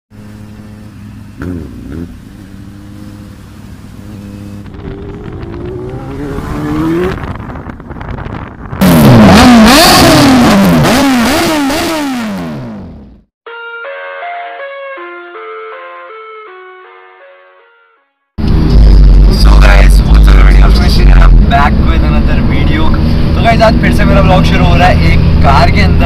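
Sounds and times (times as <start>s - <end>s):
motorcycle engines revving: 0.2s - 13.1s.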